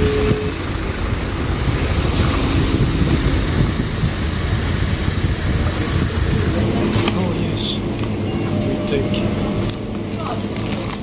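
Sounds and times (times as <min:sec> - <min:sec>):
wind buffeting microphone: 0:00.0 - 0:07.1
motor vehicle running: 0:00.0 - 0:11.0.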